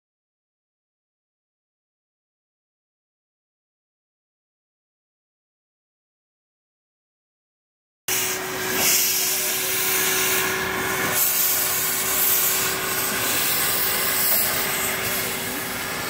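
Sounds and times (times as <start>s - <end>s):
locomotive venting steam: 8.1s - 16.0s.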